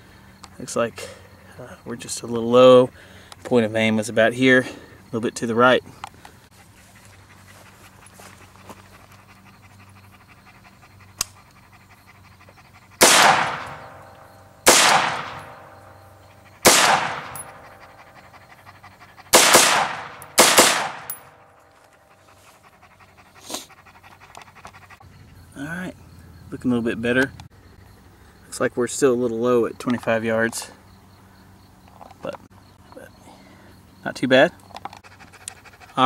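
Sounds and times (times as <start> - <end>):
rifle shots with echo: 13.0 - 14.0, 14.6 - 15.8, 16.6 - 17.6, 19.3 - 21.2.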